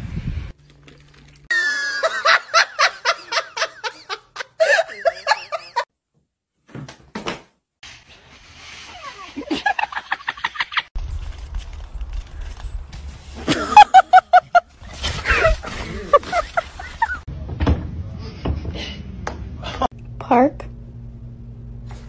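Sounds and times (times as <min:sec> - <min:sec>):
people laughing: 0:01.5 - 0:05.9, 0:09.4 - 0:10.9, 0:13.5 - 0:17.3.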